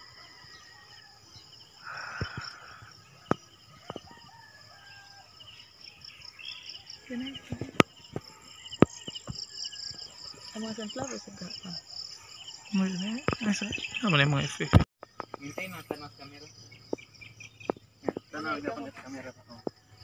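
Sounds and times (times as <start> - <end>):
rooster crowing: 0.0 - 5.7
insects trilling: 0.0 - 20.0.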